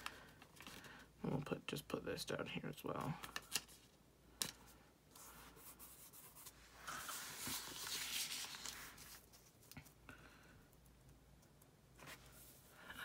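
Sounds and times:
paper rubbing and sliding: 0:05.2 - 0:09.6.

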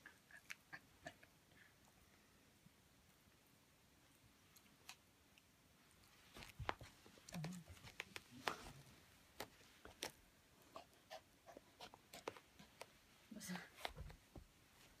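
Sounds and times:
faint clicks and rustles: 0:04.1 - 0:15.0.

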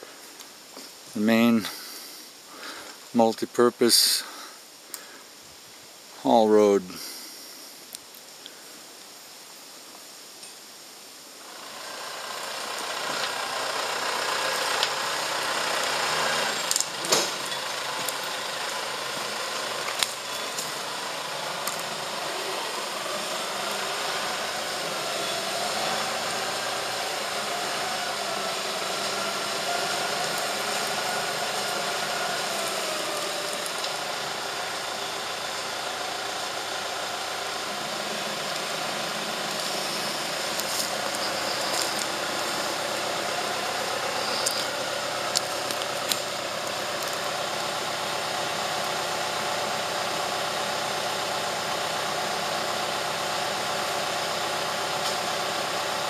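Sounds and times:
hydraulic whine: 0:11.4 - 0:56.0
tractor engine running: 0:11.4 - 0:56.0.

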